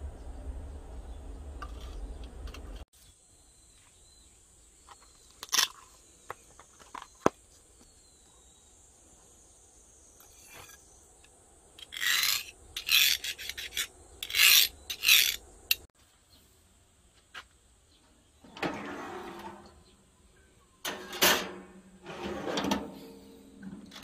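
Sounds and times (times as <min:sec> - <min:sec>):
file scraping steel blade: 0:11.8 - 0:15.9
handling clunks and rattles: 0:18.4 - 0:19.9, 0:20.8 - 0:24.0.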